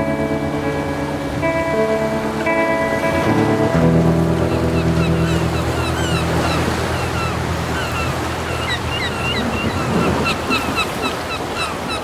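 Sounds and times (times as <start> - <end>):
held music chord: 0.0 - 10.2
sea surf washing: 0.0 - 12.0
high bird chirps: 4.5 - 12.0.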